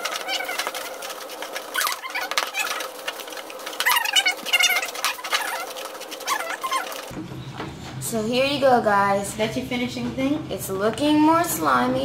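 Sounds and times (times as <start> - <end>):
slime squeaking: 0.0 - 7.1
spoons scraping plastic tubs: 0.0 - 7.1.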